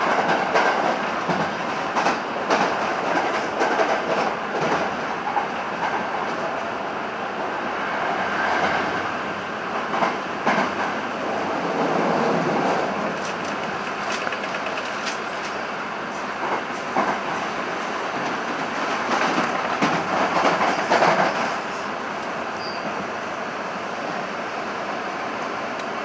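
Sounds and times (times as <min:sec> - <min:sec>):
train rolling rumble: 0:00.0 - 0:26.0
wheels clattering over rail joints: 0:13.1 - 0:15.7.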